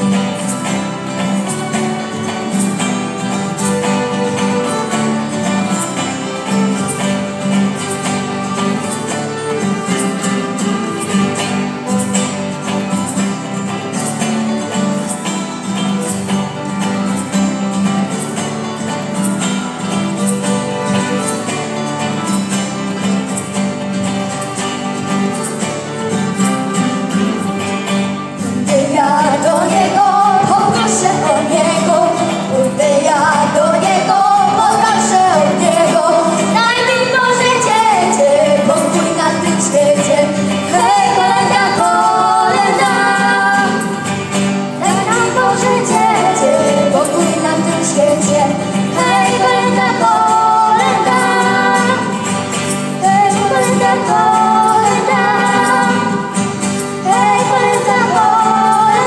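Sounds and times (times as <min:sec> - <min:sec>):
shaker rhythm: 0:00.0 - 0:59.0
small band playing: 0:00.0 - 0:59.0
girls singing a carol: 0:28.4 - 0:59.0.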